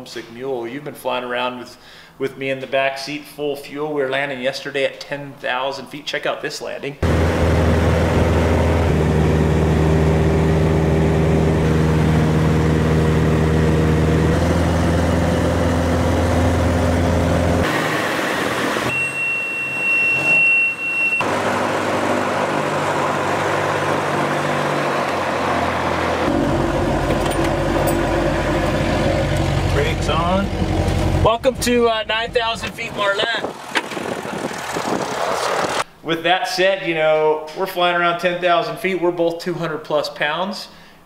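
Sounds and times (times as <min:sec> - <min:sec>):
high-pitched beep: 0:18.9 - 0:21.2.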